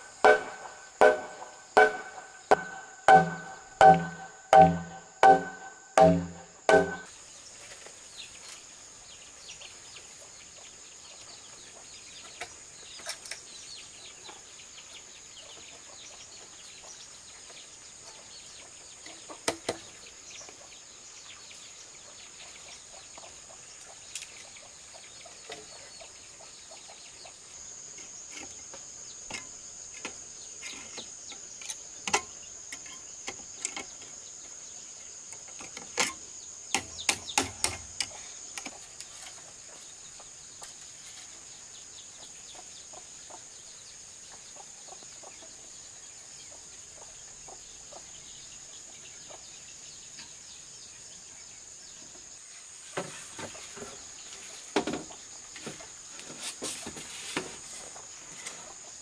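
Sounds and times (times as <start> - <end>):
bamboo poles and wire knocking: 0.0 - 7.1, 35.4 - 39.2
insects buzzing: 0.0 - 59.0.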